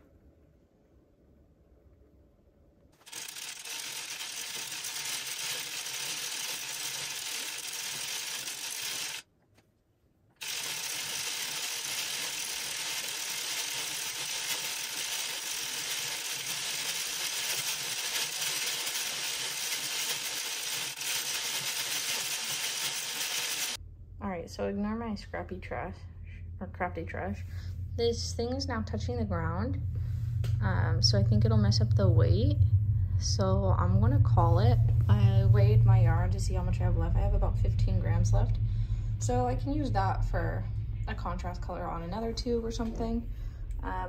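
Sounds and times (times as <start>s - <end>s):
knitting machine clattering: 3.0s - 9.2s, 10.4s - 23.8s.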